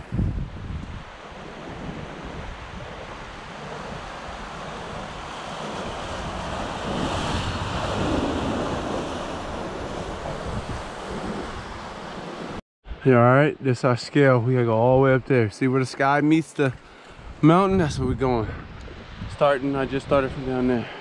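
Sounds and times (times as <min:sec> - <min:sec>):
wind rumbling on microphone: 0:00.0 - 0:13.0, 0:17.2 - 0:20.8
surf breaking over rocks: 0:03.4 - 0:12.6.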